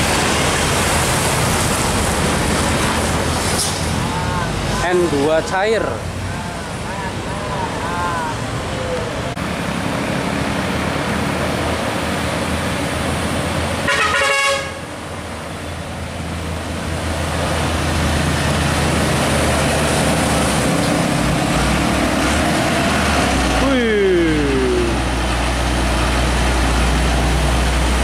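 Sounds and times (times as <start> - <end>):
truck diesel engine under load: 0.0 - 14.2, 14.8 - 28.0
road traffic passing: 0.0 - 28.0
vehicle horn blast: 13.8 - 14.9.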